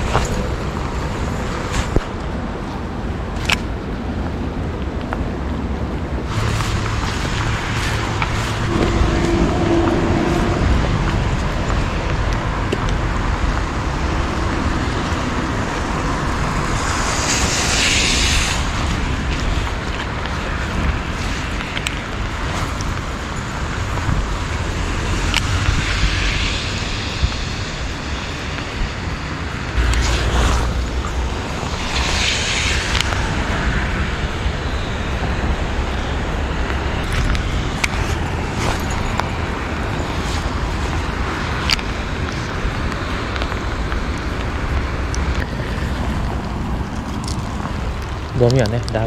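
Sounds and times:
wind buffeting microphone: 0.0s - 49.0s
rain hissing: 6.2s - 49.0s.

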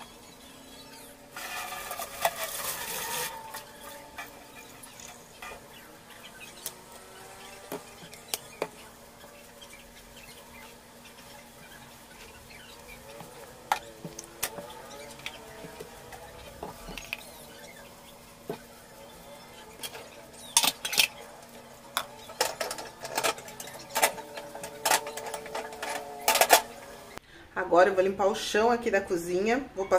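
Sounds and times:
sharp clicks and knocks: 21.9s - 27.0s.

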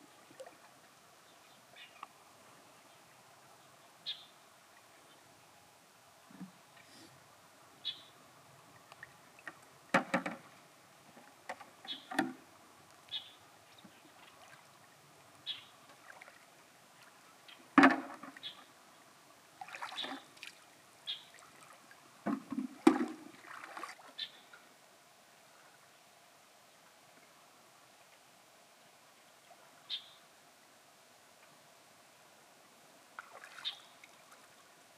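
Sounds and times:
water splashing and sloshing: 0.0s - 1.1s, 8.4s - 24.8s, 33.0s - 34.9s.

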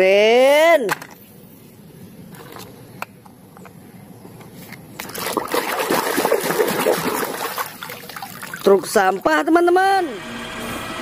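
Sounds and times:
water splashing and sloshing: 4.9s - 9.4s.

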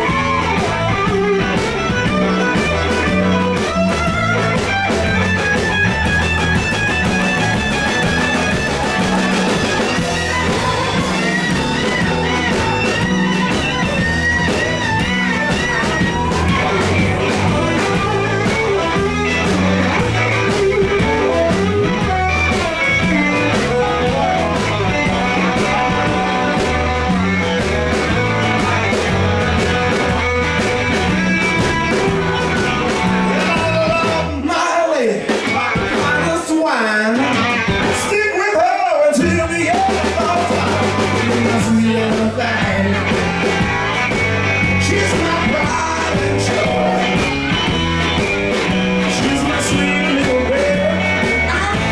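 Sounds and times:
electric guitar bending notes: 0.0s - 34.4s, 35.4s - 51.9s
steady drum beat: 0.0s - 38.4s, 39.1s - 51.9s
bass guitar: 0.0s - 51.9s.

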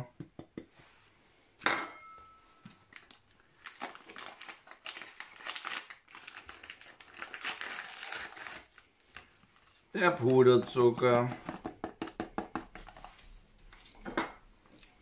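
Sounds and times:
paper carton crinkling: 2.9s - 11.0s.

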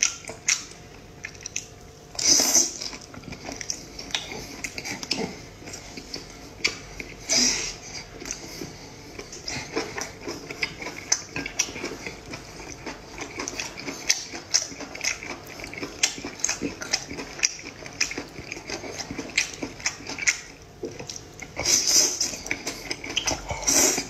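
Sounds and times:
person slurping and chewing: 0.4s - 24.0s.

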